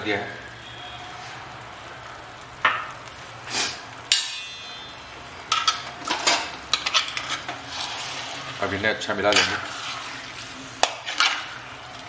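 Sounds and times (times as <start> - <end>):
metal utensil clanking on pan: 4.1 - 4.8, 5.5 - 7.6, 9.2 - 9.7, 10.8 - 11.6.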